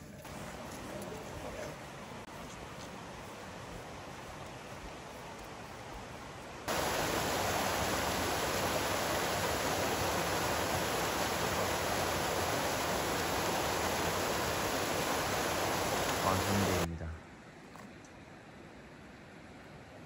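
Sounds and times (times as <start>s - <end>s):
stream rushing: 0.0s - 16.9s.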